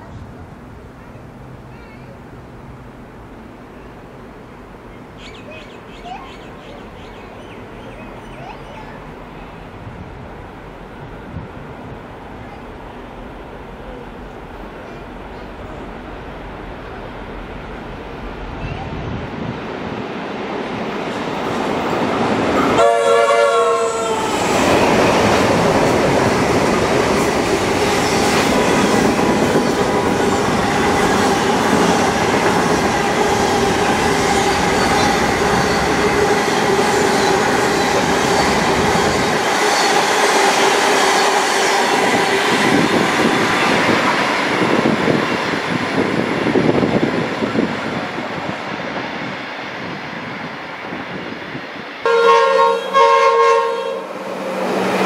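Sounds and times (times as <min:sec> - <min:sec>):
train horn: 0:22.6 - 0:24.7, 0:52.0 - 0:54.2.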